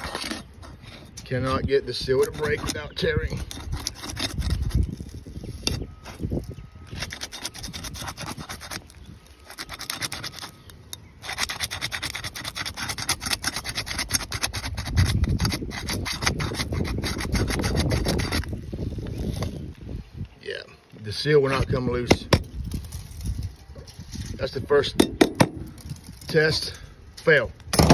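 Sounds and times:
pry bar scraping shingles: 0:00.0 - 0:18.6.

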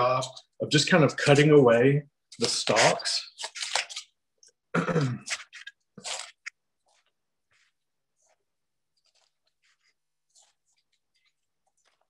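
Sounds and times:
man speaking: 0:00.0 - 0:03.3
crisp crunches of cutting cauliflower: 0:02.4 - 0:04.1, 0:05.0 - 0:12.0.

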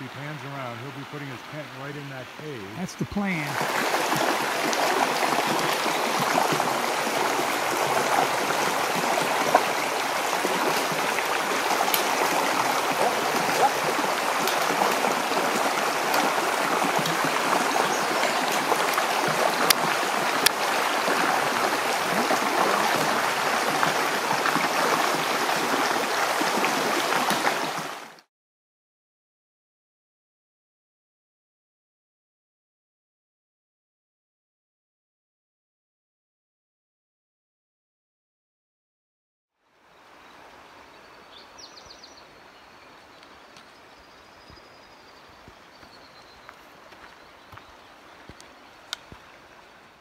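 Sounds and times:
water rushing over rocks: 0:00.1 - 0:28.3.

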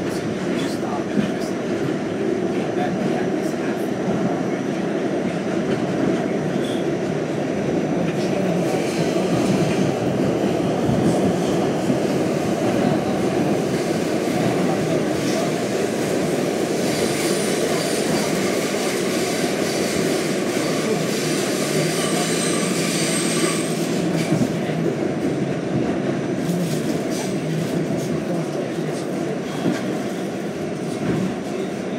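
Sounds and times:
subway car wheels rumbling on rail: 0:00.0 - 0:31.9
high wheel squeal: 0:21.8 - 0:23.9.

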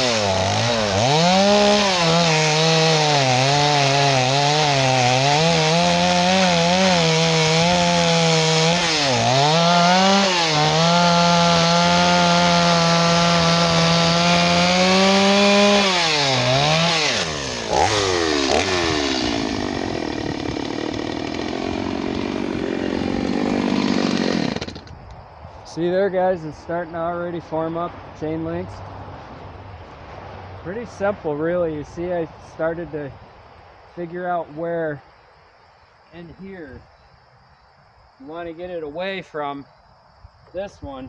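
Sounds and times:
chainsaw cutting log: 0:00.0 - 0:25.1.

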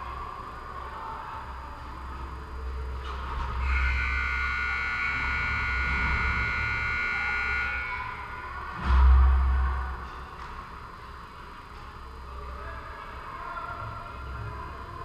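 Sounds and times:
buzzer tone: 0:03.5 - 0:08.5.

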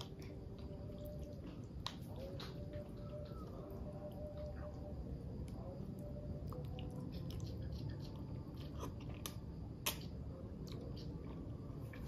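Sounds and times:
low steady hum: 0:00.0 - 0:12.0
person chewing noodles: 0:06.0 - 0:12.0.

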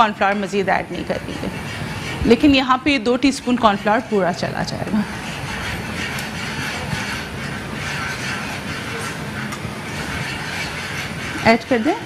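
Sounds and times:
whisk scraping metal saucepan: 0:00.0 - 0:12.0.

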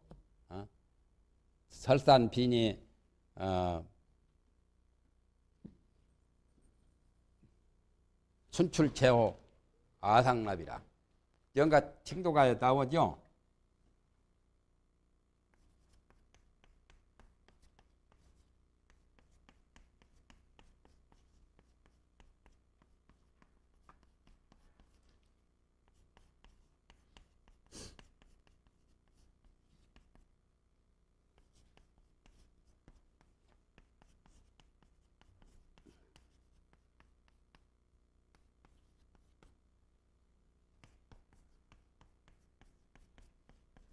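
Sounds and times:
chalk scratching on chalkboard: 0:15.5 - 0:30.3, 0:31.3 - 0:37.7, 0:38.3 - 0:39.6, 0:40.7 - 0:43.9
chalk scrape: 0:25.9 - 0:30.2, 0:40.8 - 0:43.9.

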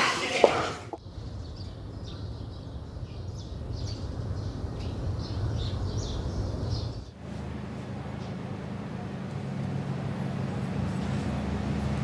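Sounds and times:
small birds chirping: 0:00.9 - 0:07.2.

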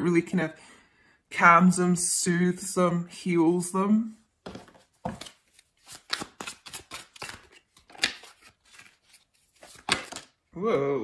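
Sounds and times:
cards being shuffled: 0:04.5 - 0:10.4.

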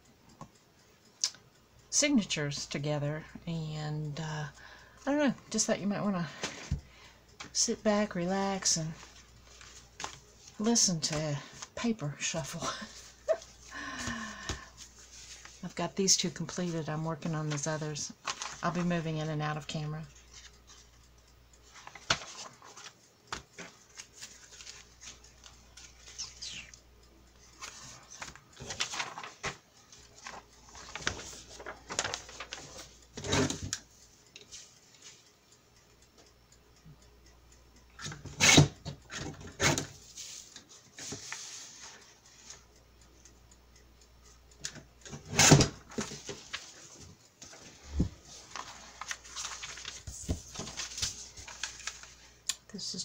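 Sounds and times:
paper rustling: 0:18.2 - 0:18.8, 0:21.8 - 0:25.2, 0:27.6 - 0:29.6, 0:30.2 - 0:32.9, 0:48.4 - 0:52.2.

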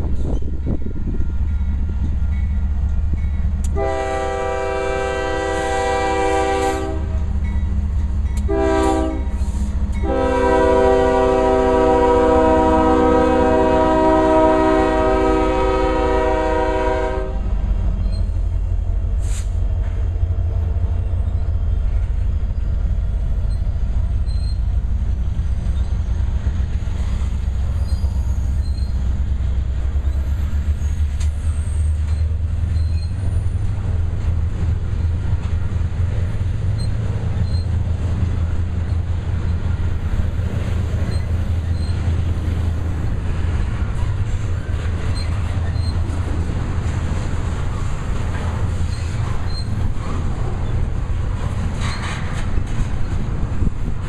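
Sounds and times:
train cars rumbling past: 0:00.0 - 0:54.0
locomotive air horn blasts: 0:03.7 - 0:07.3, 0:08.4 - 0:17.6.

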